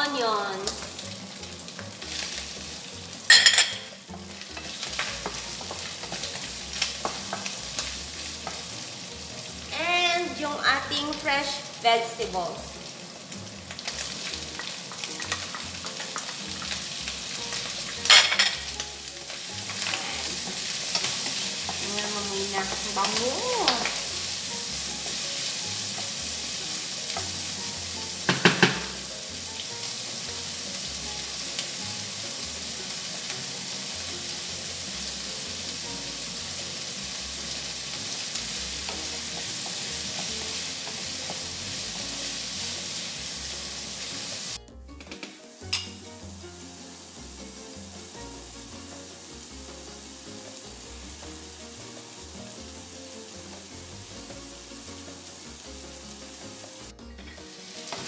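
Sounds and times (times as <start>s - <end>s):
bacon and vegetables sizzling: 0.0s - 58.0s
wooden spatula stirring: 4.5s - 9.3s
spatula knocking against pan: 28.2s - 29.0s.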